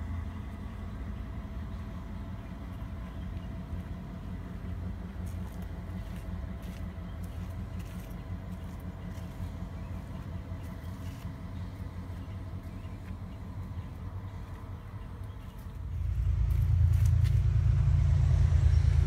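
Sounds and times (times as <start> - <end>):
diesel locomotive engine drone: 0.0 - 19.0
faint steady tones: 0.0 - 19.0.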